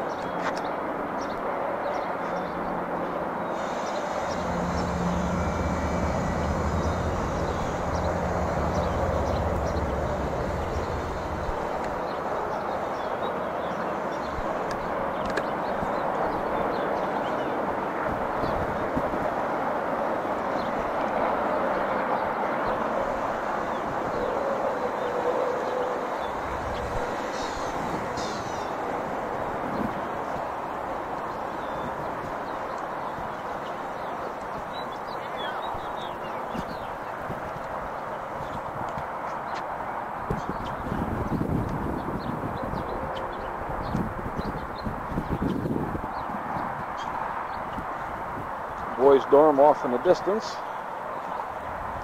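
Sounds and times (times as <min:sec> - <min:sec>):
outdoor background noise: 0:00.0 - 0:52.0
road noise inside car: 0:03.6 - 0:12.2
low engine hum: 0:03.6 - 0:12.9.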